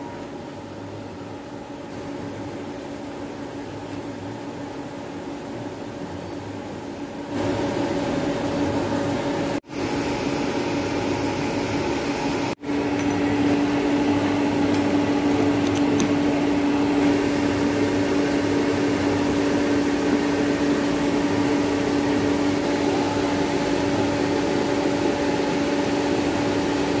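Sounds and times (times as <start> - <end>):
electric motor humming: 9.7 - 19.3.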